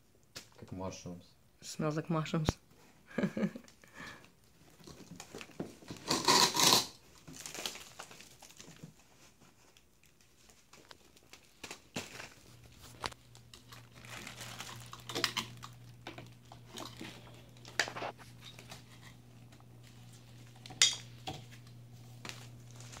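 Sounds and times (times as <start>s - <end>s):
plastic garbage bag crinkling: 4.7s - 23.0s
steady low hum: 12.4s - 23.0s.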